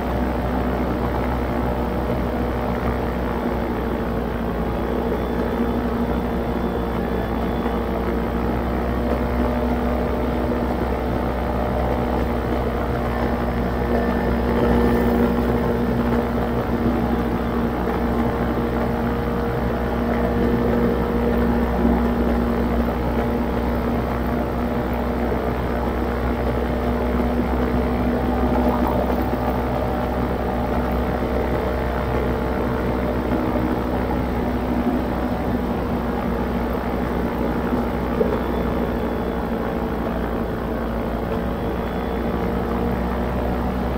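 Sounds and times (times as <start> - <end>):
motor running steadily: 0.0 - 43.9
low rumble: 27.4 - 30.8.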